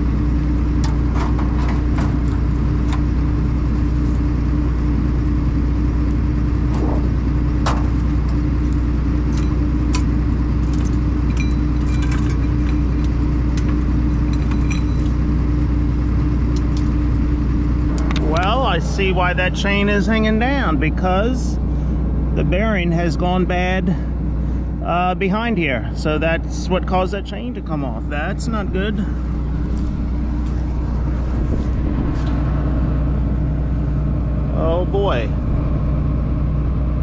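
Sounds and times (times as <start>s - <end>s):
harvester engine running: 0.0s - 37.0s
clicks and rattles: 9.3s - 15.2s.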